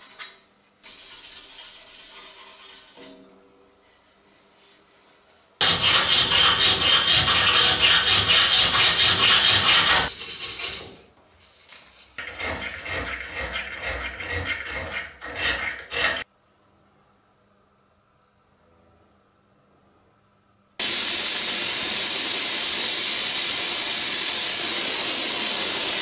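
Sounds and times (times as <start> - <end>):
hand file rasping on metal: 5.6 - 11.0, 12.2 - 16.3.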